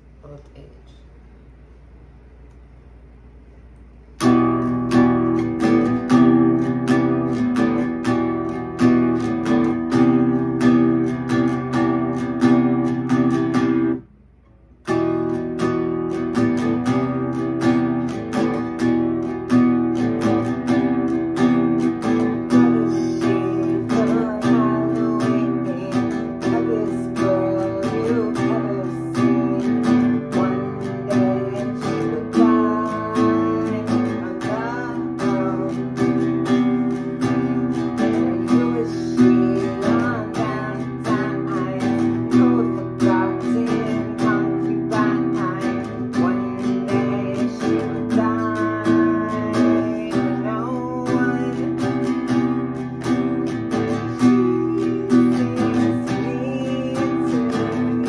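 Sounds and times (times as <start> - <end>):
acoustic guitar strumming: 4.0 - 58.0
woman singing: 20.0 - 58.0.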